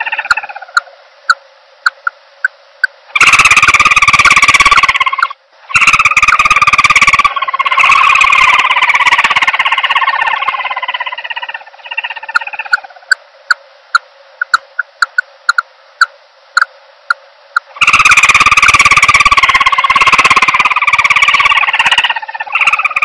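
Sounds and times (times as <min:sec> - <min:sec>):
fast pulsing bird trill: 0:00.0 - 0:00.8, 0:03.1 - 0:13.2, 0:17.7 - 0:23.0.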